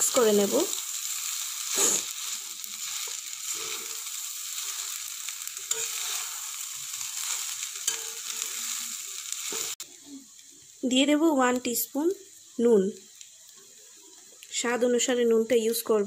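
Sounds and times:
frying sizzle: 0:00.0 - 0:16.0
metal spatula scraping pan: 0:01.7 - 0:05.0, 0:05.7 - 0:08.8.

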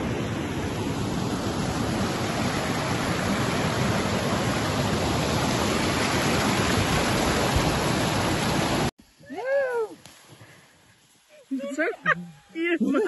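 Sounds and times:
stream rushing over rocks: 0:00.0 - 0:08.9.

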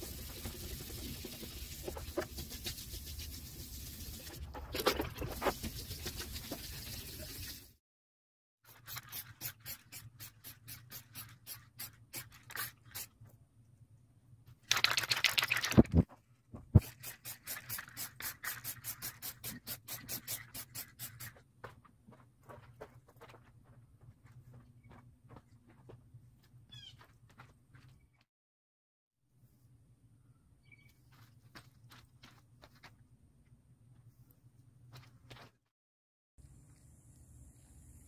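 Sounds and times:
sponge scrubbing plastic: 0:00.0 - 0:07.6
aerosol can rattling: 0:08.7 - 0:13.2, 0:14.7 - 0:16.0, 0:16.8 - 0:21.4
aerosol spray hiss: 0:16.8 - 0:21.4.

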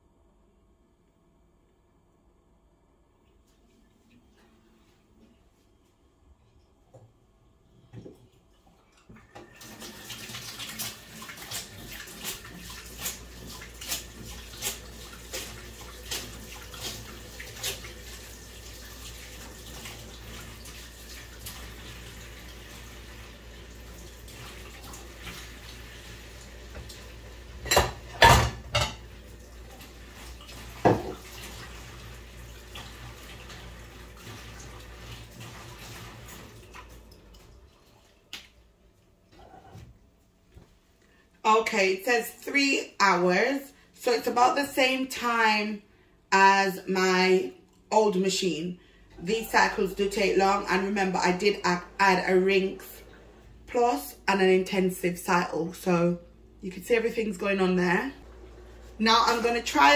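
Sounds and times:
washing machine hum: 0:00.0 - 0:59.9
water filling washing machine: 0:06.4 - 0:40.7, 0:41.5 - 0:59.9.

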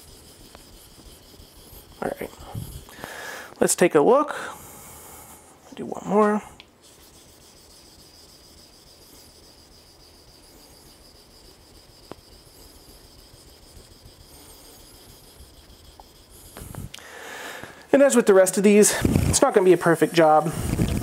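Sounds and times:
knife scraping on whetstone: 0:00.0 - 0:03.0, 0:06.8 - 0:16.9, 0:18.8 - 0:21.0
steady high-pitched whine: 0:06.8 - 0:16.9.

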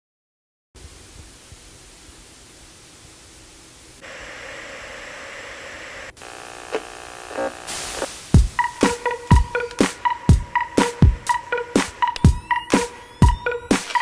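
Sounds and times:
television static hiss: 0:00.8 - 0:10.2
steady electrical hum: 0:00.8 - 0:10.6.

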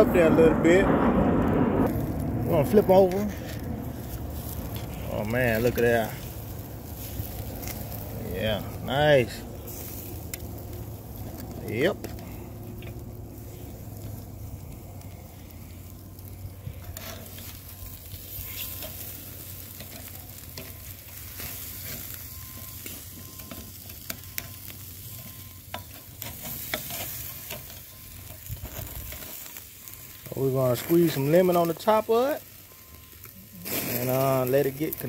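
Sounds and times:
meat sizzling on a grill: 0:01.4 - 0:35.0
metal tongs on grill grate: 0:01.9 - 0:14.6, 0:16.2 - 0:35.0.

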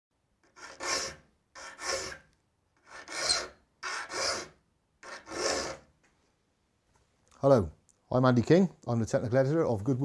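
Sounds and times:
file rasping on saw teeth: 0:00.4 - 0:05.9.

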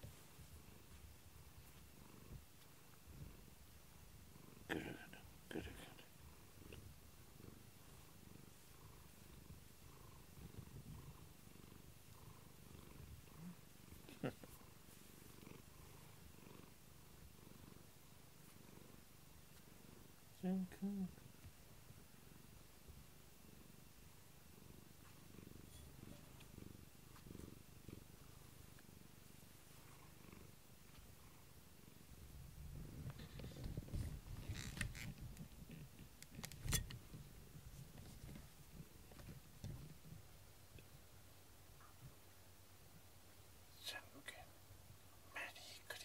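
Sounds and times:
cat purring: 0:00.0 - 0:46.0.

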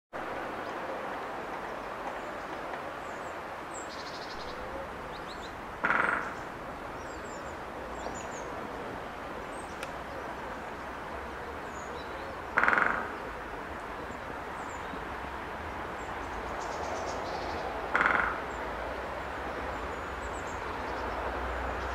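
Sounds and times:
steady background hiss: 0:00.2 - 0:21.9
woodpecker drumming on wood: 0:05.8 - 0:06.6, 0:12.5 - 0:13.3, 0:17.9 - 0:18.6.

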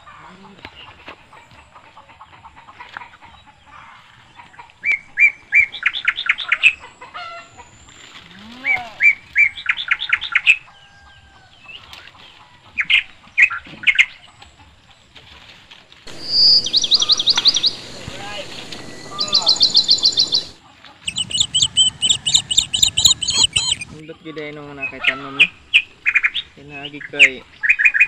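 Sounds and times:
songbird whistling song: 0:16.1 - 0:24.0.

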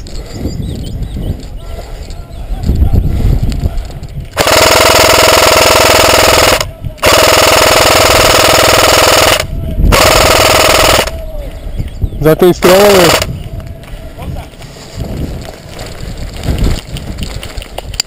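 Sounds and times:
airsoft rifle firing full auto: 0:04.4 - 0:11.1, 0:12.9 - 0:13.3.

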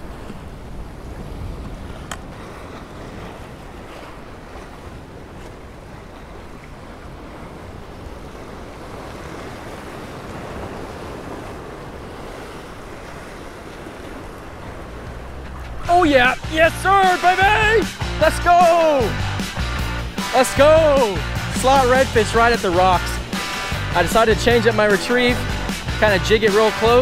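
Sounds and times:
wind buffeting microphone: 0:00.0 - 0:20.3
surf breaking against rocks: 0:00.0 - 0:27.0.

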